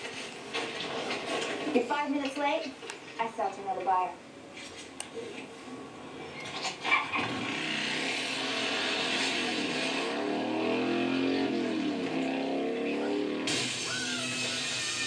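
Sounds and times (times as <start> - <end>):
car engines revving: 6.0 - 15.0.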